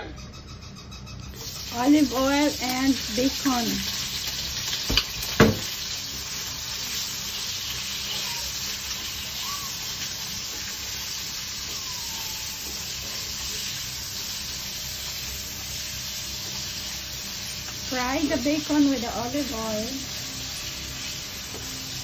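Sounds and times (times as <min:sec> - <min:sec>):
bacon sizzling in a pan: 0:01.4 - 0:22.0
sharp knocks: 0:04.9 - 0:05.7.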